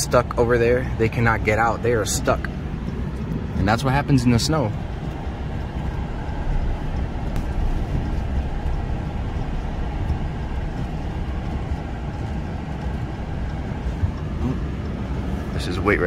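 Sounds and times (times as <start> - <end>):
truck engine and tyre noise: 0.0 - 16.0.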